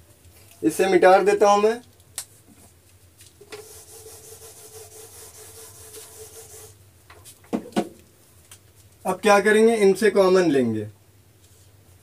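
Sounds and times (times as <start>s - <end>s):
duster wiping whiteboard: 3.4s - 6.8s.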